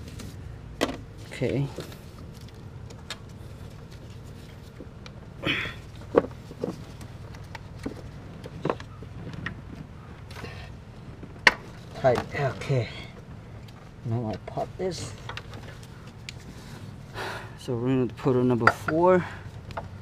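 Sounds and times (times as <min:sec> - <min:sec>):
steady low hum: 0:00.0 - 0:20.0
scraping rustle: 0:01.1 - 0:05.0, 0:05.8 - 0:13.2.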